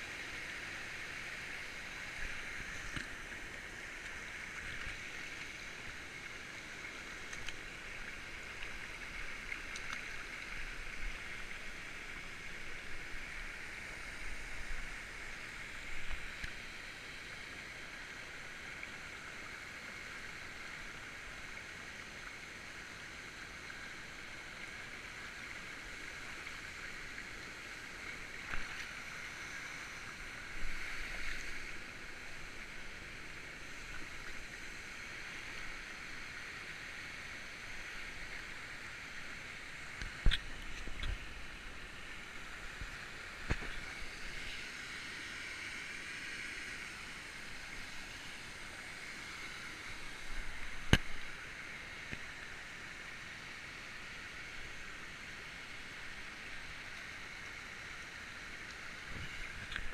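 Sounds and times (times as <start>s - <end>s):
stream babbling over stones: 0.0s - 59.9s.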